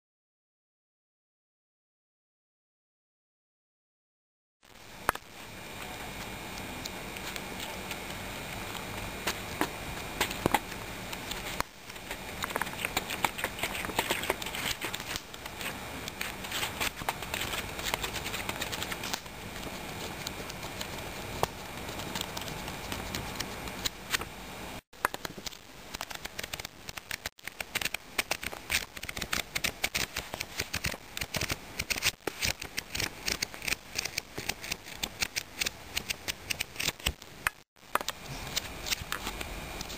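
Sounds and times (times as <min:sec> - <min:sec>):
paper pages rustling: 0:07.2 - 0:24.3, 0:25.0 - 0:37.2.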